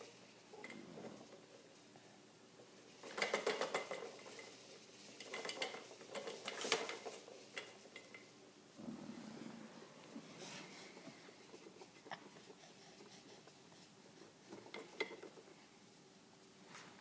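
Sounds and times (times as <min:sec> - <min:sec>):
plastic toys rattling and clicking: 0:02.9 - 0:08.3, 0:10.8 - 0:15.7.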